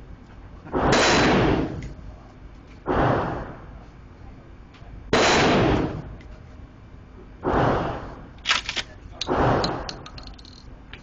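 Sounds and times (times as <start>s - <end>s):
shotgun blasts echoing: 0.8s - 1.8s, 5.1s - 6.1s
shotgun pump clacks: 8.4s - 11.0s.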